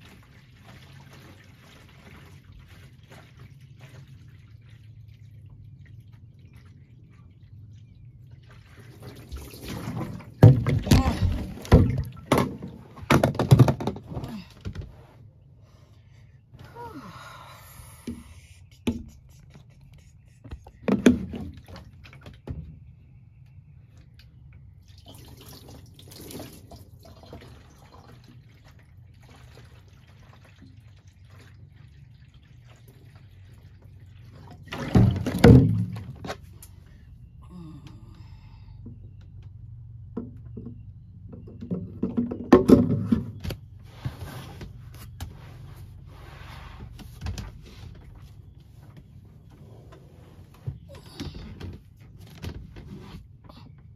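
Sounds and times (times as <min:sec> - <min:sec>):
water sloshing: 0:00.0 - 0:15.8, 0:24.8 - 0:37.3
plastic jug knocks and thunks: 0:09.6 - 0:14.9, 0:20.8 - 0:22.8, 0:34.6 - 0:36.5, 0:40.1 - 0:43.7
plastic clatter: 0:10.4 - 0:14.9.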